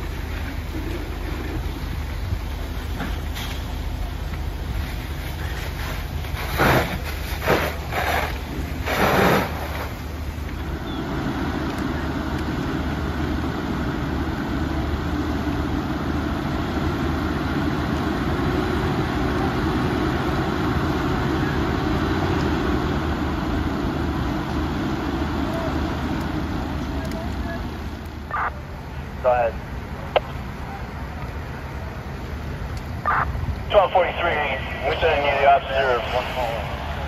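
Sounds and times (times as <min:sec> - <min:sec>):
fire engines droning: 0:00.0 - 0:37.0
loud rushes of noise: 0:33.0 - 0:37.0.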